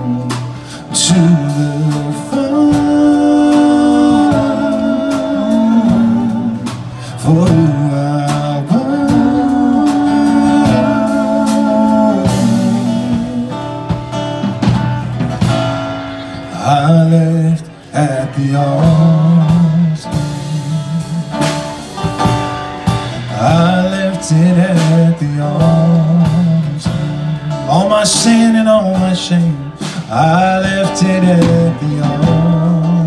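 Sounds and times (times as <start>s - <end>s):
person singing: 0.0s - 14.0s, 22.8s - 33.0s
guitar: 0.0s - 33.0s
live band playing: 0.0s - 33.0s.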